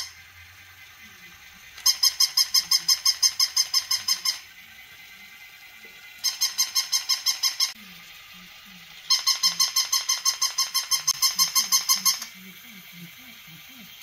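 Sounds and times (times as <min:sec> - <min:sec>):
toy puppy electronic yaps: 0:00.0 - 0:00.2, 0:01.1 - 0:04.6, 0:06.0 - 0:07.8, 0:09.0 - 0:12.4.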